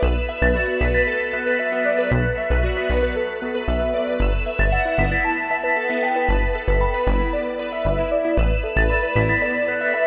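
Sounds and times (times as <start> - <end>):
deep bass notes: 6.3 - 9.4.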